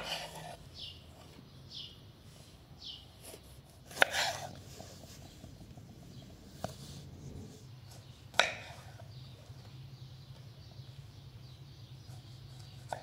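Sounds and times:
slicing rustle: 0.0 - 0.6, 3.2 - 5.6
knife chopping on wooden board: 3.8 - 4.5, 8.3 - 8.9.

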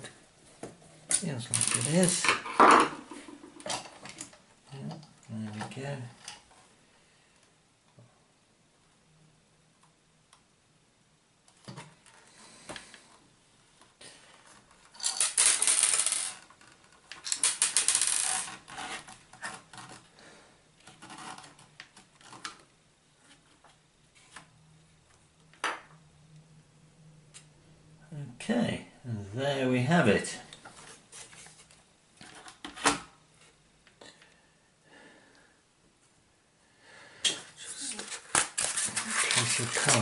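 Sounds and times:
loud plastic rattling clatters: 15.0 - 20.0.

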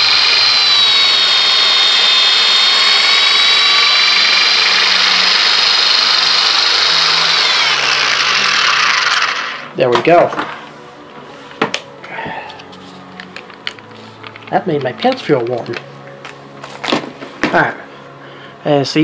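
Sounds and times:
power drill whining at high speed: 0.0 - 9.7.

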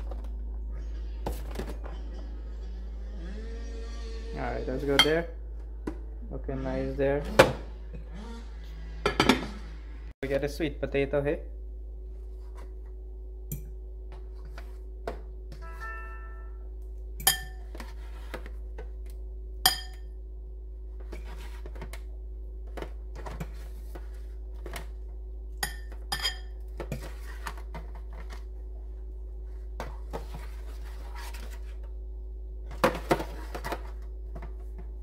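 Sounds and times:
faint steady hum: 0.0 - 35.0.

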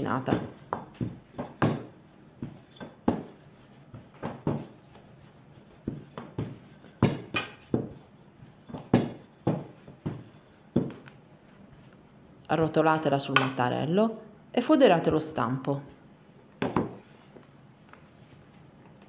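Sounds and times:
rolling pin rolling dough: 0.0 - 13.6.

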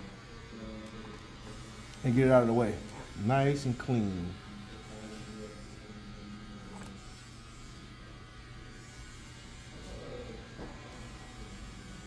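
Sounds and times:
hair shears snipping: 1.8 - 2.1.

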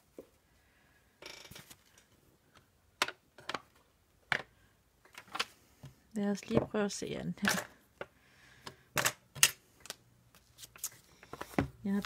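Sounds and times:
paper rustling: 10.4 - 12.0.

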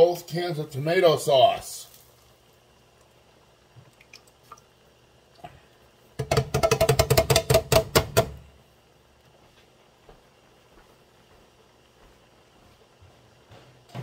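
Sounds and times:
metal can knocking on skillet: 6.2 - 8.4.

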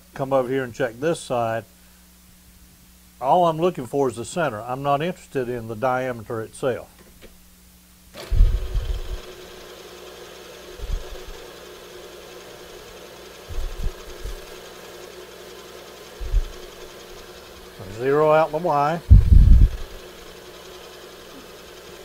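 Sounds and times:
milling machine spindle running: 8.2 - 22.0
short low thumps: 8.3 - 9.2, 10.8 - 11.4, 13.5 - 14.5, 16.2 - 16.7, 19.1 - 20.0.

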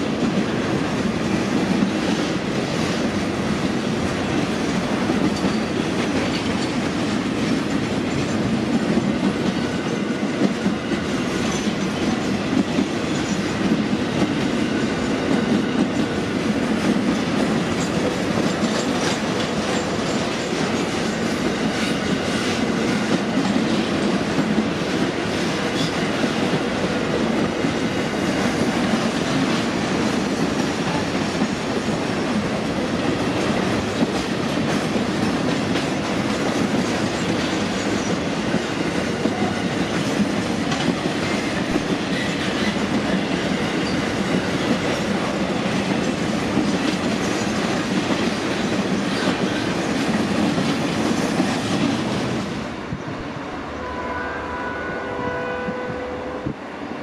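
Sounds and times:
freight train wheels rumbling: 0.0 - 57.0
wheels clacking over rail joints: 28.2 - 52.5.

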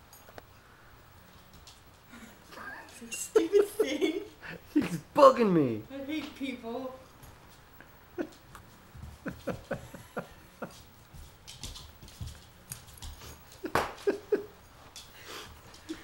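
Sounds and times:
dog scuffling: 6.1 - 16.0
dog claws pattering on wood: 10.6 - 14.2.

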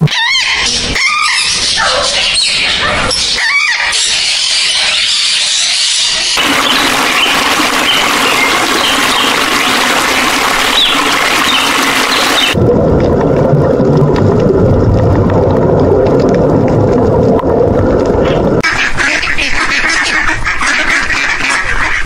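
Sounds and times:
water gurgling: 6.2 - 20.5
underwater low rumble: 6.4 - 18.6.

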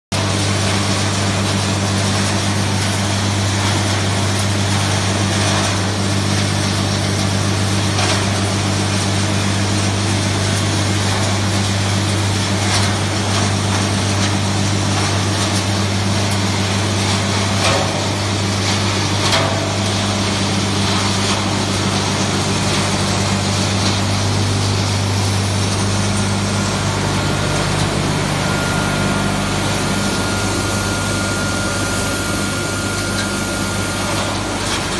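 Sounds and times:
machine low hum: 0.2 - 34.9
thin high tone: 24.8 - 34.9.

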